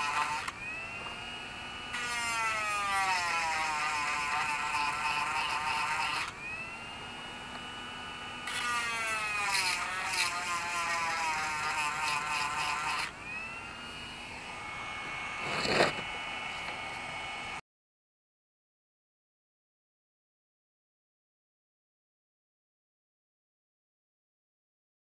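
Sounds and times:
rotary tool grinding chain: 0.0s - 0.5s, 1.9s - 6.3s, 8.4s - 13.1s, 15.2s - 16.1s.

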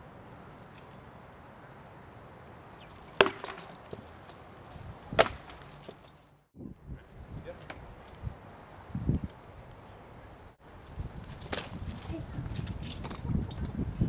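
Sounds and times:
sharp wooden cracks: 2.9s - 4.4s, 5.1s - 6.4s
wooden swords striking shields: 3.1s - 4.1s, 5.1s - 6.1s.

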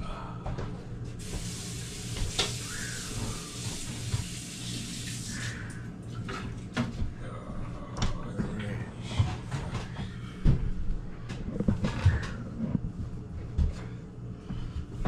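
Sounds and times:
water running from tap: 1.2s - 5.8s.

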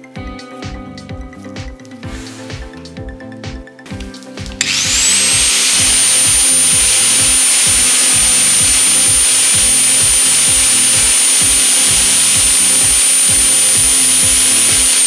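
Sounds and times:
background music with beat: 0.0s - 15.0s
angle grinder whine: 4.6s - 15.0s
grinder disc cutting metal: 4.6s - 15.0s.

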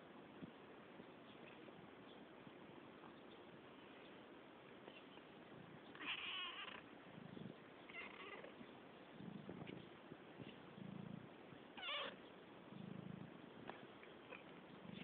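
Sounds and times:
cat chirping: 5.9s - 6.8s, 7.9s - 8.5s, 11.8s - 12.2s
soft low sounds: 6.7s - 15.0s.

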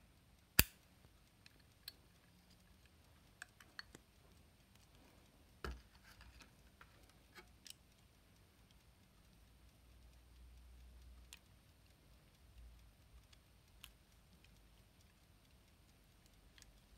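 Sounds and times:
light metal clicks: 0.6s - 8.8s.

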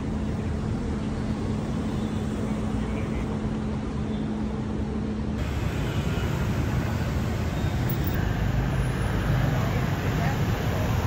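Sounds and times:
steady hum: 0.0s - 11.0s
street traffic rumble: 0.0s - 11.0s.

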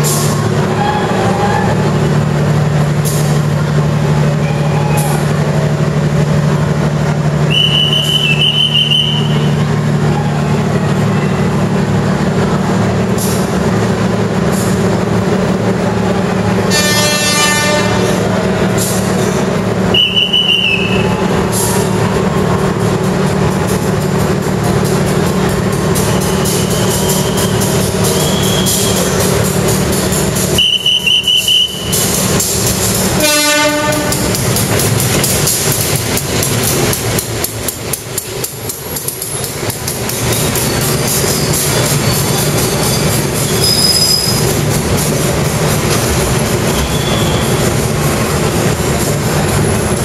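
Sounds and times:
diesel train engine droning: 0.0s - 50.0s
short high whistle: 7.5s - 9.5s, 19.9s - 21.2s, 26.1s - 29.1s, 30.6s - 32.0s
horn-like blast: 16.7s - 18.2s, 33.2s - 34.2s.

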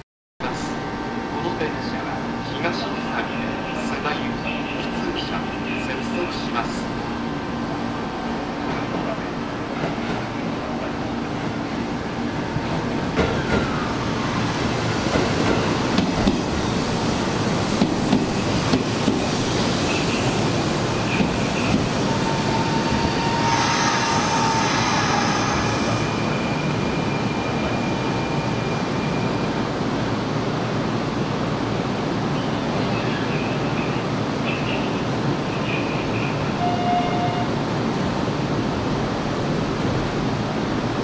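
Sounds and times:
electric train rumbling on track: 0.4s - 41.0s
high-pitched wheel squeal: 22.1s - 29.5s.

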